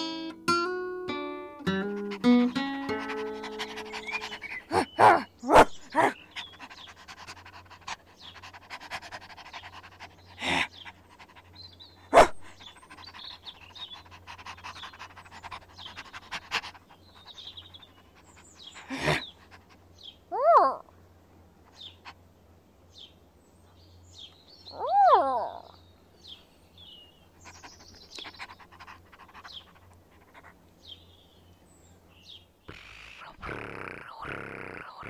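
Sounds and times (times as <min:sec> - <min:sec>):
cartoon dog panting: 0:01.5 - 0:19.9, 0:27.4 - 0:30.6.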